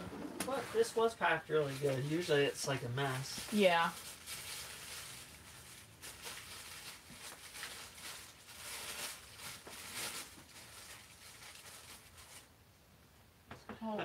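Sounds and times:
packing material crinkling: 0.5s - 12.5s.

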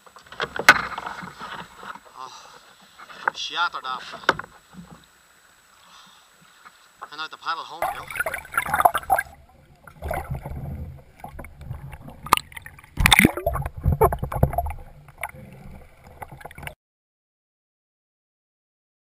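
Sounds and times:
water sloshing and gurgling: 7.8s - 16.8s.

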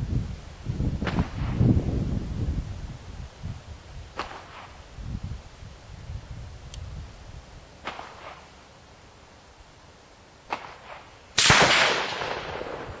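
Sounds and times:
rifle shot with echo: 10.5s - 13.0s.

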